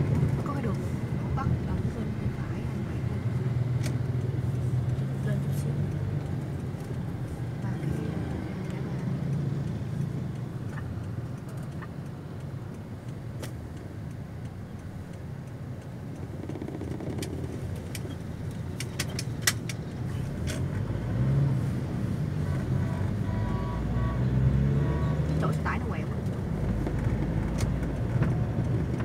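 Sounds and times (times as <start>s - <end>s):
low rumble of street traffic: 0.0s - 29.0s
sharp clicks: 5.8s - 20.7s.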